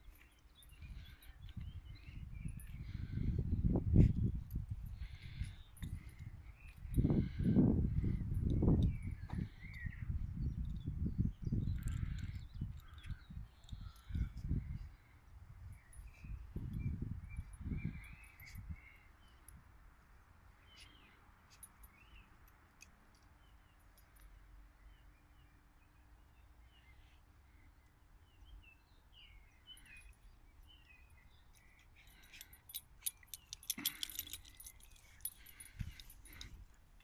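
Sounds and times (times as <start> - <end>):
faint birdsong chirps: 0.0 - 37.0
clicking and jingling: 4.4 - 10.9, 11.7 - 14.4, 29.7 - 37.0.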